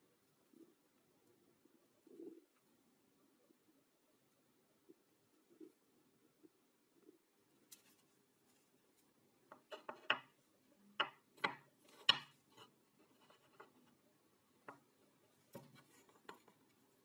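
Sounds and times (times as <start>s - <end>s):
wooden blocks knocking on workbench: 11.0s - 12.3s.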